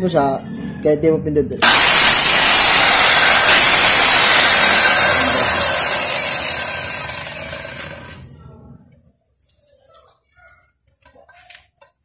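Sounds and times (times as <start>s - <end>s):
circular saw spinning down: 1.6s - 8.3s.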